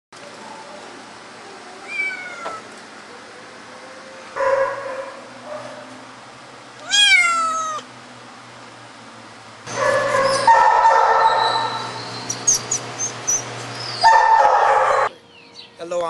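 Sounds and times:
cat meowing: 0:01.7 - 0:02.7, 0:06.8 - 0:07.9.

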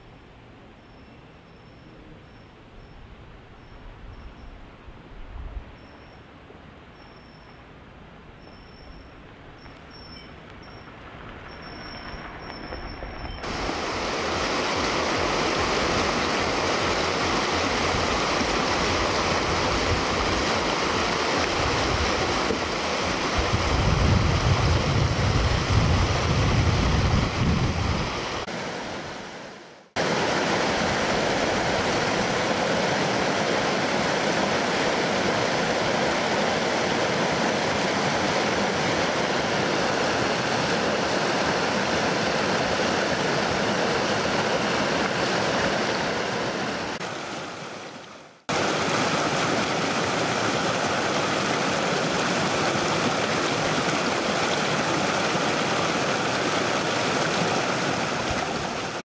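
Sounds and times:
stream rushing over rocks: 0:13.4 - 0:59.0.

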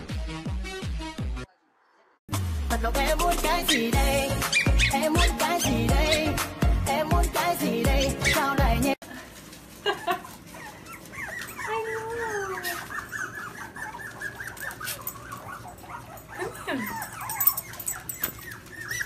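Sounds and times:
puppies squeaking and whining: 0:03.6 - 0:06.4, 0:07.9 - 0:08.8, 0:09.9 - 0:19.0.

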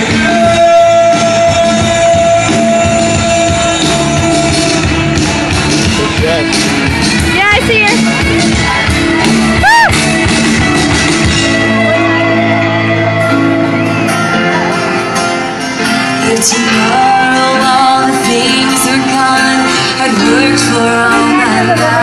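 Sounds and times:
drums: 0:00.0 - 0:22.0
electric guitars: 0:00.0 - 0:22.0
keyboard: 0:00.0 - 0:22.0
woman singing: 0:16.2 - 0:22.0.

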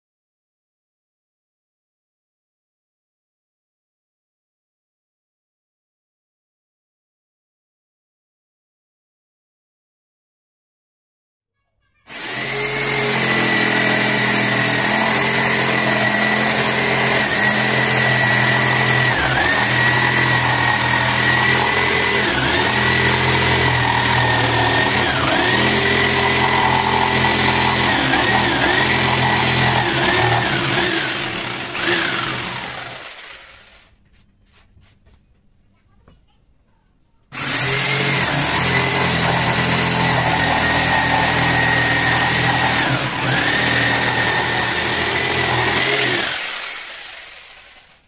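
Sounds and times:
electric jigsaw cutting wood: 0:12.1 - 0:34.0, 0:37.3 - 0:48.0.

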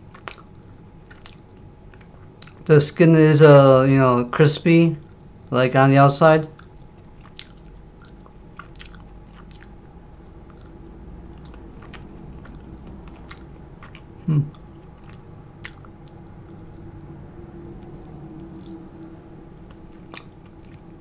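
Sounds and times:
person chewing crispy food: 0:00.0 - 0:02.7, 0:06.5 - 0:21.0
person humming: 0:14.2 - 0:14.6.

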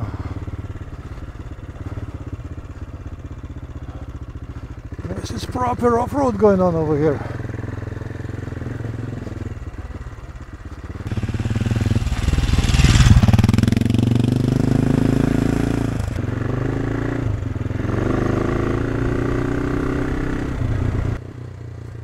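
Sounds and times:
gravel crunching under tyres: 0:00.0 - 0:13.9
motorcycle engine running: 0:00.0 - 0:22.0.

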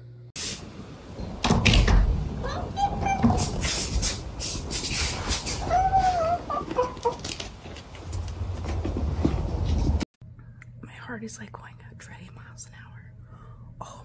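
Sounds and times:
cat meowing: 0:05.6 - 0:07.1.

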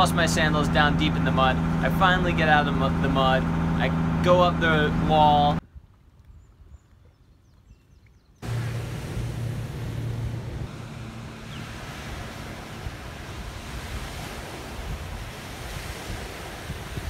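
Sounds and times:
boat wake washing: 0:00.0 - 0:05.6, 0:08.4 - 0:17.0
low boat engine hum: 0:00.0 - 0:05.6, 0:08.4 - 0:17.0
wind buffeting microphone: 0:05.6 - 0:17.0.

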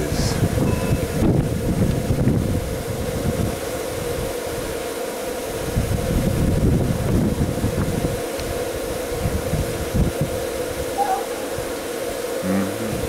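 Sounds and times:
wind buffeting microphone: 0:00.0 - 0:11.9, 0:12.7 - 0:13.0
faint steady hum: 0:00.0 - 0:13.0.

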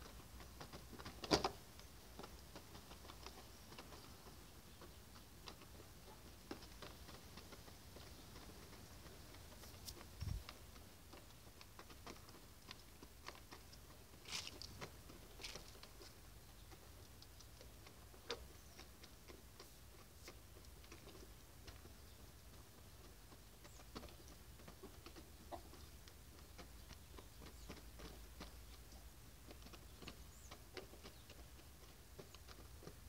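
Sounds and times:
hens pecking on dirt: 0:00.0 - 0:33.0.

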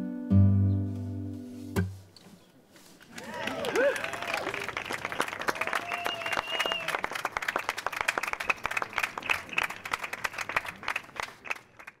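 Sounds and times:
small audience clapping: 0:03.1 - 0:12.0.

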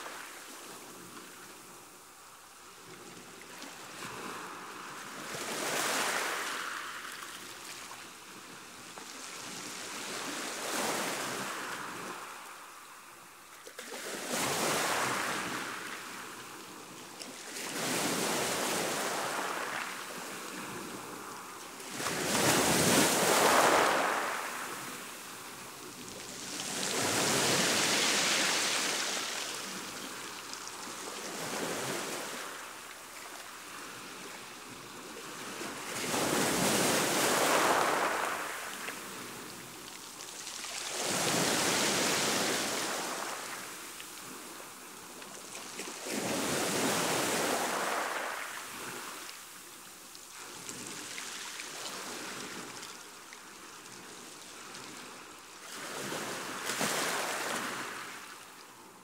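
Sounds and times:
sea waves washing: 0:17.3 - 0:49.5.

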